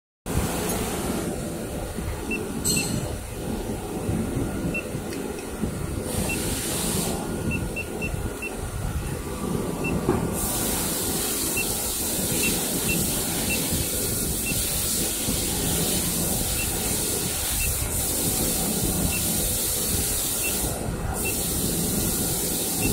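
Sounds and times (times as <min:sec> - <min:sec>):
steady machine noise with hiss: 0:00.3 - 0:22.9
short faint beeps: 0:02.3 - 0:03.1.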